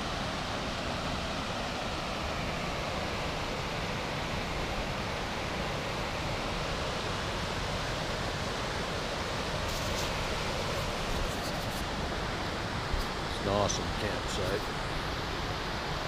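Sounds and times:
creek rushing over rocks: 4.6s - 16.0s.

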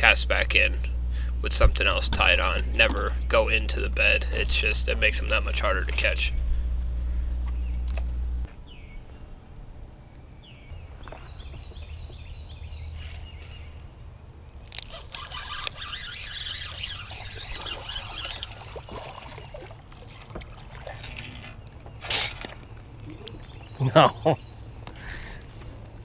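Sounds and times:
fishing reel whirring: 0.0s - 8.5s, 12.8s - 14.0s, 14.6s - 19.7s.

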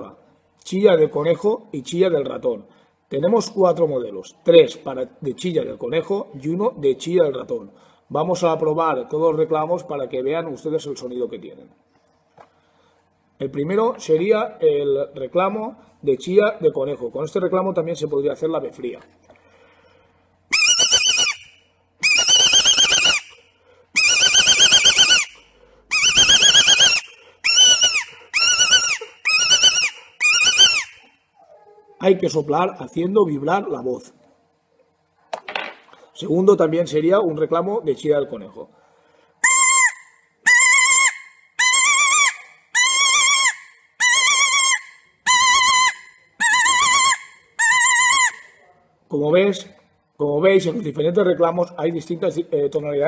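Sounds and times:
high quavering predator call squeals: 20.5s - 21.4s, 22.0s - 23.4s, 24.0s - 25.3s, 25.9s - 31.1s, 39.4s - 48.5s.

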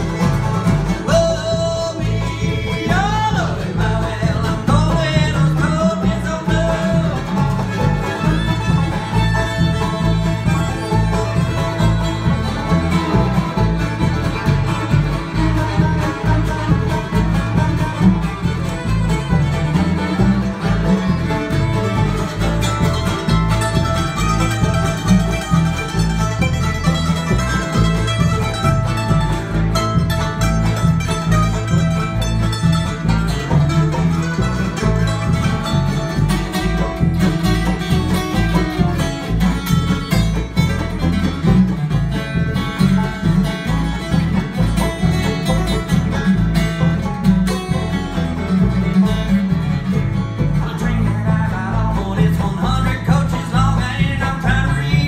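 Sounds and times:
banjo: 0.0s - 55.0s
fiddle: 0.0s - 55.0s
strummed acoustic guitars: 0.0s - 55.0s
walking upright bass: 0.0s - 55.0s.

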